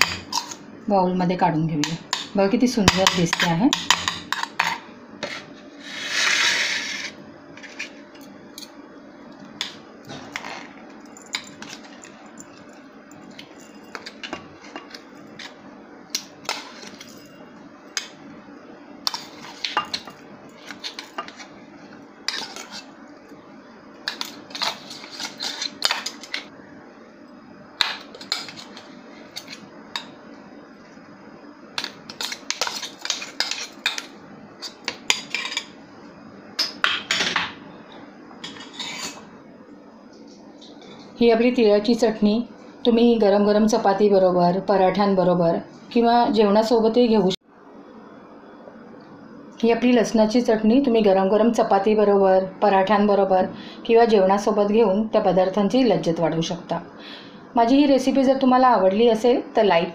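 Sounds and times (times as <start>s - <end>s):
spoon scraping a steel jar: 38.4s - 39.2s.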